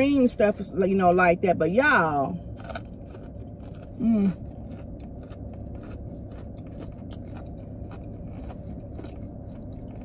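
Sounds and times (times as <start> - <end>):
low hum: 0.0 - 10.0
person chewing crunchy food: 2.3 - 10.0.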